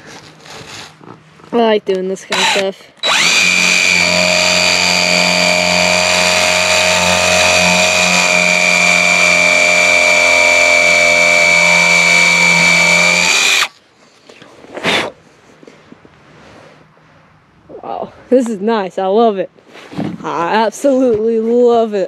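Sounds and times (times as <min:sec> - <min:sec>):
electric drill whining: 0:02.3 - 0:13.7.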